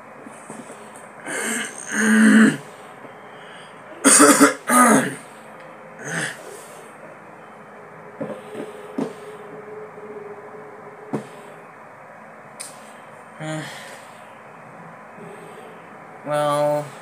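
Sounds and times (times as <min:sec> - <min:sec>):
man coughing: 0:01.3 - 0:02.6, 0:04.0 - 0:05.2.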